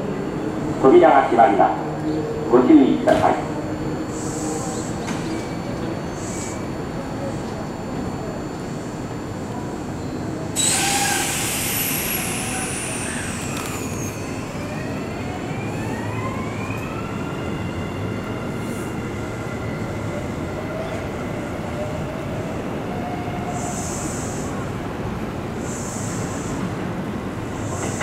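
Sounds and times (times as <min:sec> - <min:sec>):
electric train motors whining: 0:10.5 - 0:18.3
train brake hiss: 0:10.6 - 0:14.6, 0:23.5 - 0:24.6, 0:25.6 - 0:26.8, 0:27.5 - 0:28.0.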